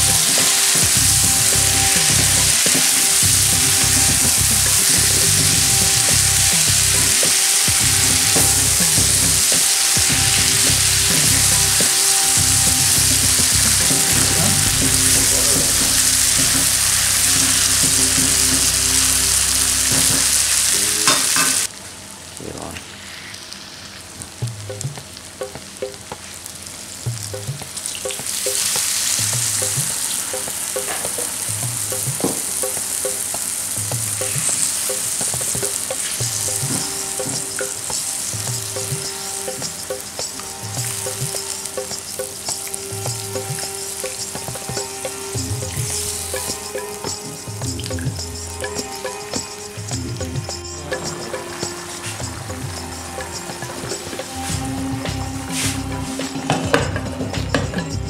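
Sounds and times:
chicken sizzling in pan: 0:00.0 - 0:54.6
water hissing in hot pan: 0:00.0 - 0:56.8.

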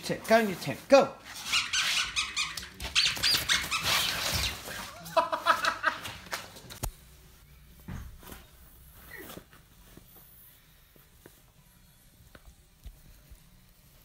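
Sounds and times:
puppy whining: 0:01.4 - 0:05.1
puppy rustling in nylon tunnel: 0:02.9 - 0:05.4.

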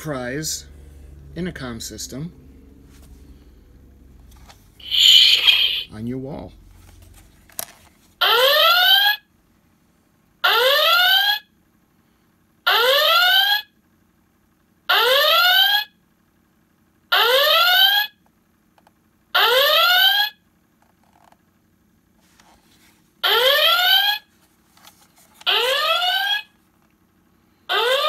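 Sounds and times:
electronic alert klaxon whoop: 0:04.8 - 0:05.9, 0:08.2 - 0:09.2, 0:10.4 - 0:11.5, 0:12.7 - 0:13.7, 0:14.9 - 0:15.9, 0:17.1 - 0:18.2, 0:19.4 - 0:20.4.

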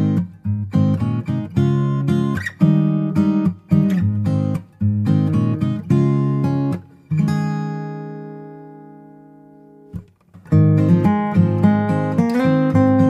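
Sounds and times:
acoustic guitar music: 0:00.0 - 0:13.0.

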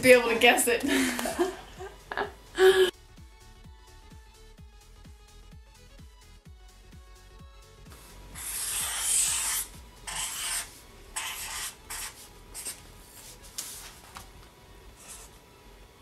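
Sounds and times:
marker scratching on paper: 0:08.0 - 0:13.8, 0:15.0 - 0:15.3.

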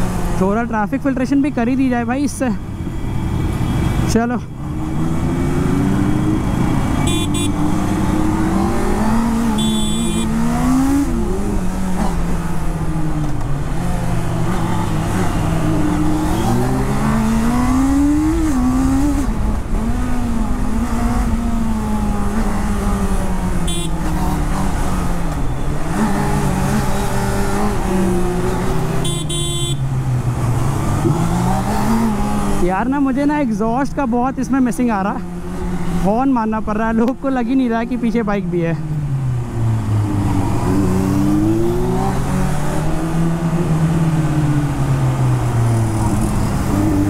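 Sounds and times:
motorcycle engine revving: 0:02.4 - 0:32.8, 0:38.8 - 0:47.0
short horn beeps: 0:07.0 - 0:07.6, 0:09.6 - 0:10.3, 0:23.7 - 0:24.0, 0:29.0 - 0:29.8.

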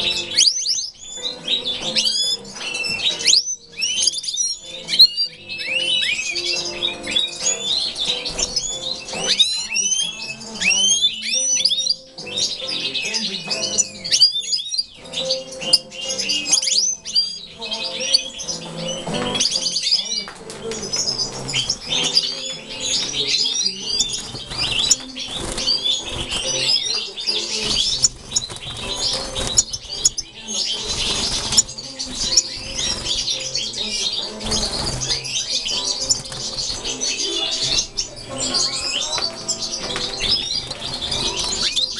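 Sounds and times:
birds chirping and twittering: 0:00.0 - 0:41.9
wings flapping: 0:20.4 - 0:41.9.

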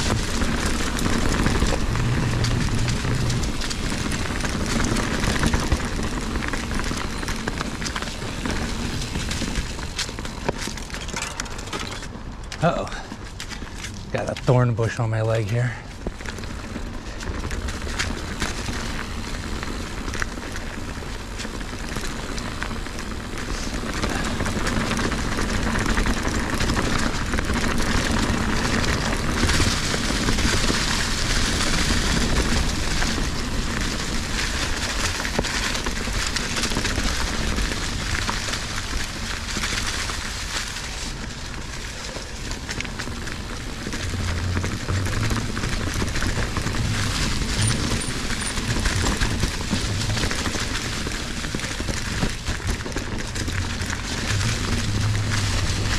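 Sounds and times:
bike tyres crackling over leaves: 0:00.0 - 0:55.9.

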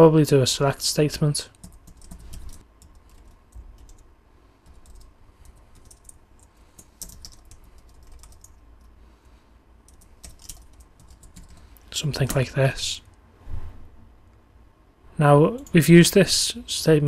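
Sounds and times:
typing on computer keyboard: 0:01.6 - 0:04.0, 0:04.7 - 0:09.0, 0:09.9 - 0:11.6.

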